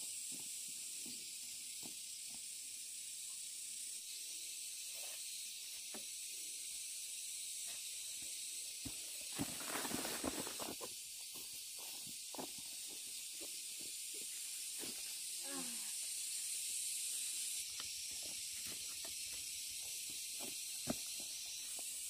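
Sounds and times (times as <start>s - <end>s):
steady high hiss: 0.0s - 22.0s
rustling: 9.3s - 10.9s.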